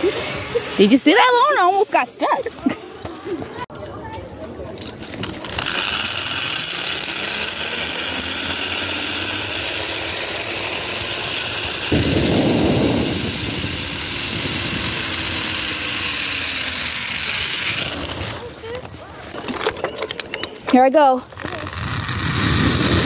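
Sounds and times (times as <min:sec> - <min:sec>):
zip line trolley whirring: 0:00.0 - 0:03.6, 0:04.4 - 0:20.6, 0:21.2 - 0:23.0
loud low rush: 0:11.8 - 0:16.5.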